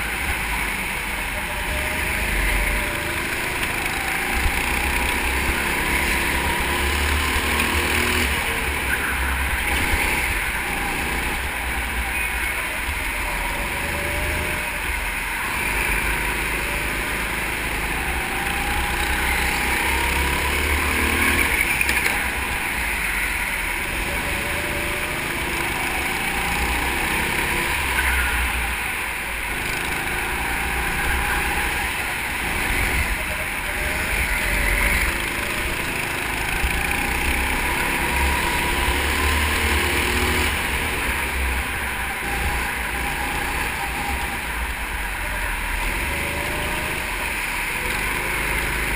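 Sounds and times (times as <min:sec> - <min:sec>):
go-kart engine revving: 0:00.0 - 0:48.9.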